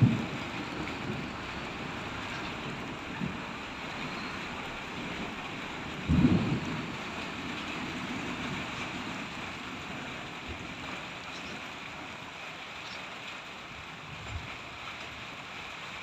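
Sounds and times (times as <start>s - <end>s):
thunder clap and rumble: 0.0s - 11.7s
rain hiss: 0.0s - 16.0s.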